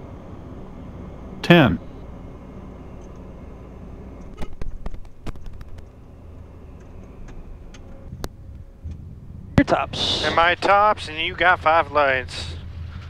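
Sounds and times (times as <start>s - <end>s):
jet rolling on runway: 0.0s - 13.0s.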